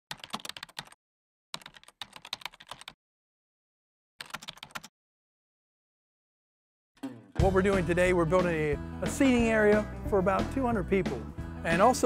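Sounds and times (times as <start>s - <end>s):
rapid keyboard key clicks: 0.1s - 1.0s, 1.6s - 3.0s, 4.2s - 4.9s.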